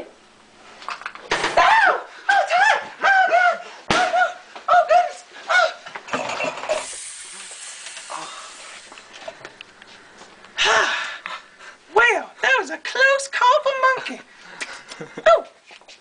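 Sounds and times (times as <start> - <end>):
steady hiss: 6.7 - 9.3.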